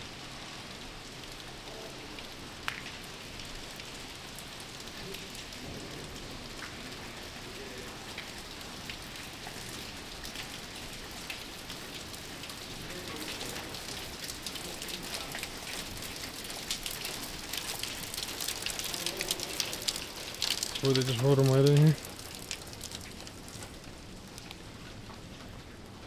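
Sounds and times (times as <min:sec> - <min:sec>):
rain pattering on surfaces: 0:00.0 - 0:26.0.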